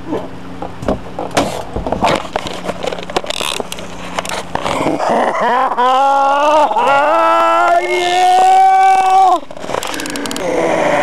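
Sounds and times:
steady low hum: 0:00.0 - 0:11.0
man yelling: 0:05.9 - 0:09.5.

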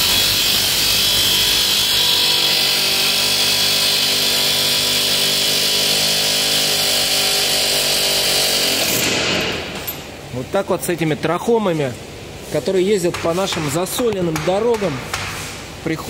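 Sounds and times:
pneumatic air hammer: 0:00.0 - 0:10.1.

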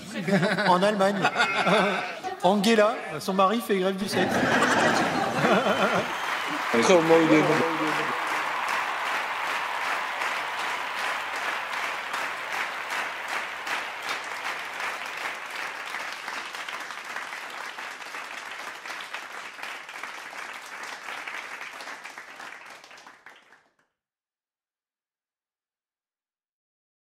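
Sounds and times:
people applauding: 0:04.0 - 0:23.8.

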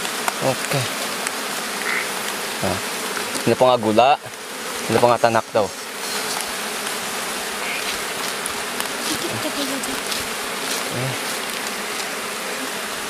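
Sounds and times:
honeybees buzzing: 0:00.0 - 0:13.0.

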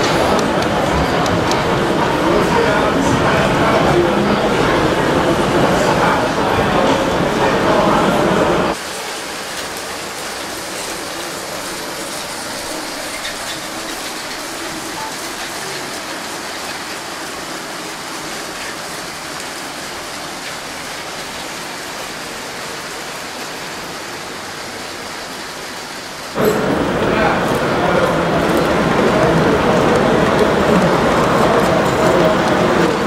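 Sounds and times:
toy trains rattling on plastic track: 0:10.4 - 0:21.5.

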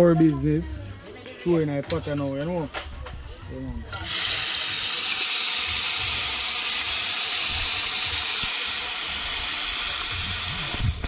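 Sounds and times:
seasonings sizzling in hot oil: 0:03.9 - 0:11.0.

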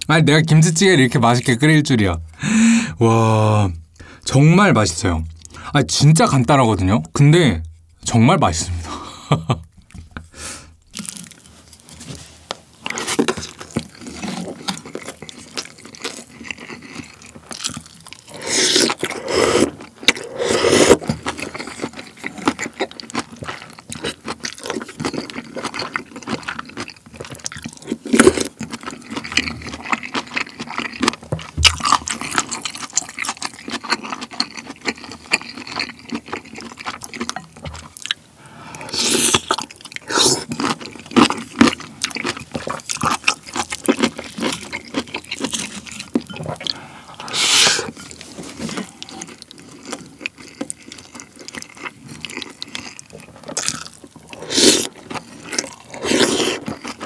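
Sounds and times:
chewing: 0:10.8 - 0:57.0
slurping broth: 0:18.2 - 0:21.8, 0:38.4 - 0:40.8, 0:45.4 - 0:49.4, 0:53.5 - 0:57.0.

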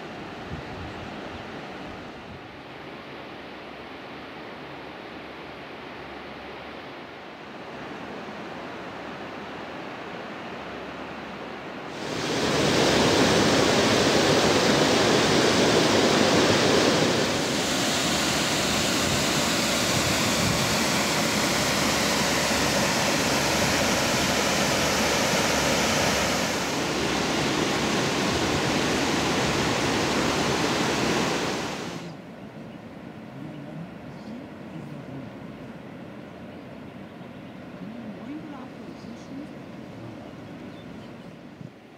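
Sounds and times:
waterfall rushing over boulders: 0:11.9 - 0:32.1.

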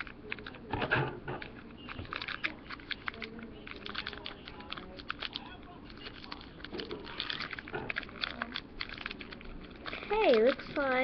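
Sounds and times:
plastic packet crinkling: 0:00.0 - 0:00.6, 0:01.4 - 0:11.0.

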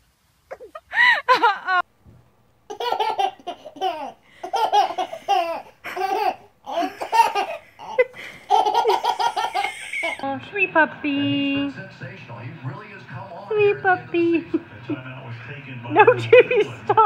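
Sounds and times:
baby laughing: 0:00.5 - 0:01.8, 0:02.7 - 0:10.2
baby squealing: 0:02.8 - 0:10.2.

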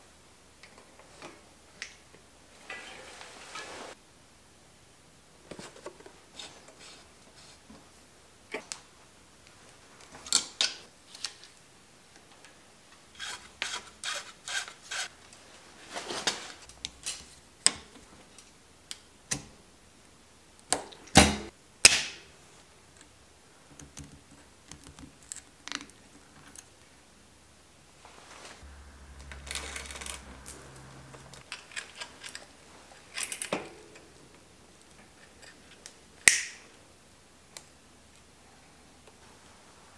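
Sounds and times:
metal parts clicking and clinking: 0:29.2 - 0:30.5, 0:31.1 - 0:34.0.

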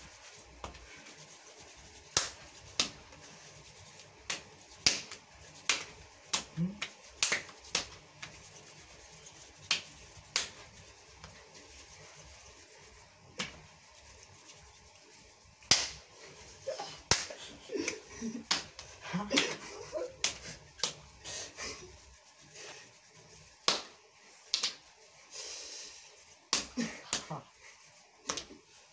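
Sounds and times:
hand slaps on skin: 0:02.1 - 0:03.0, 0:04.3 - 0:08.4, 0:09.6 - 0:10.6, 0:13.4 - 0:13.7, 0:15.6 - 0:16.0, 0:17.0 - 0:17.4, 0:18.4 - 0:19.6, 0:20.2 - 0:21.0, 0:23.6 - 0:24.8, 0:26.5 - 0:27.3, 0:28.2 - 0:28.6.

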